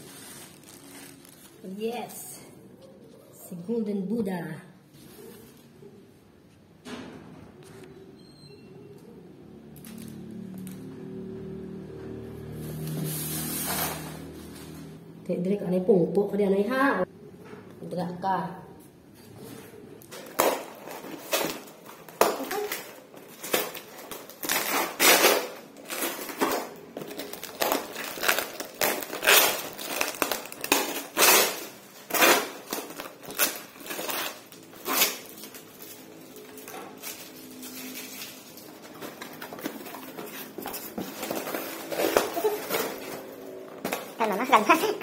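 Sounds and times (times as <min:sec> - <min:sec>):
packing tape ripping: 0:00.0 - 0:01.7, 0:12.7 - 0:14.9, 0:20.0 - 0:45.0.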